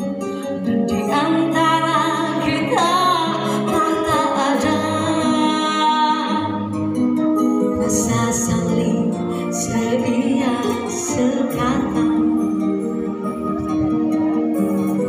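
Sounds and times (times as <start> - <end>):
instrumental backing music: 0.0 - 15.0
woman singing: 0.9 - 6.8, 7.6 - 12.8.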